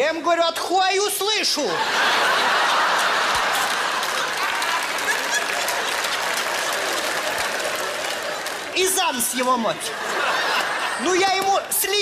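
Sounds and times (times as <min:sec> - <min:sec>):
audience applauding: 0:02.3 - 0:11.8.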